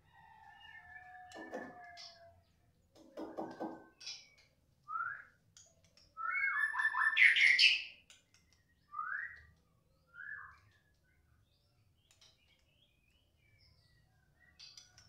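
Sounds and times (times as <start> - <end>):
bird whistling song: 4.8 - 5.4, 6.2 - 8.0, 8.8 - 10.8.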